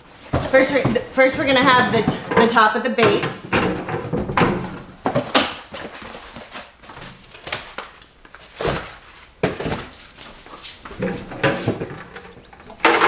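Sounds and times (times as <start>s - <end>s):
cardboard rustling and scraping: 3.8s - 13.0s.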